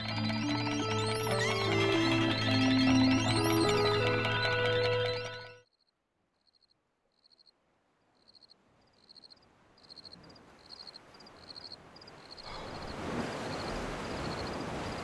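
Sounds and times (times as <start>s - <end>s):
insects chirping: 5.8s - 7.5s, 8.2s - 15.0s.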